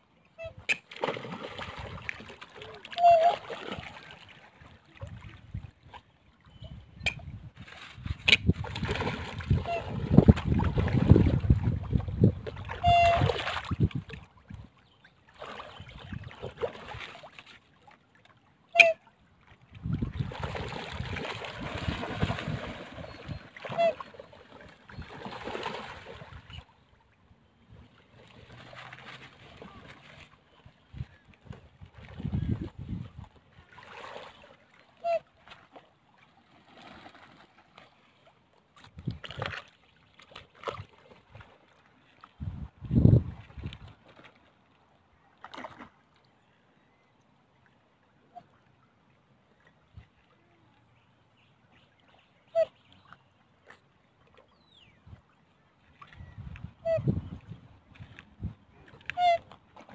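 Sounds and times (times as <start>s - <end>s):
water splashing and lapping: 0.0s - 59.9s
wind buffeting microphone: 6.6s - 14.1s, 19.8s - 23.4s, 30.9s - 33.2s, 42.4s - 43.9s, 56.2s - 58.8s.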